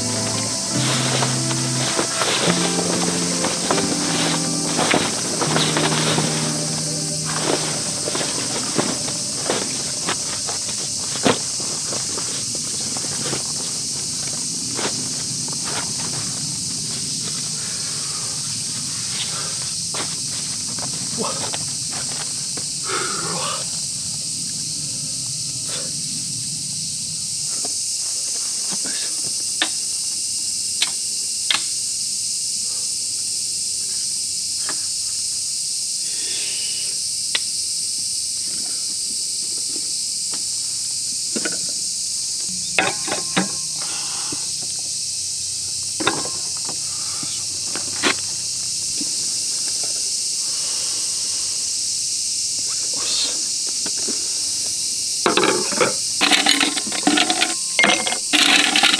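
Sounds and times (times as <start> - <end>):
cicadas chorus: 0.0 - 58.9
camp gear clicks and knocks: 0.2 - 13.8, 55.3 - 58.9.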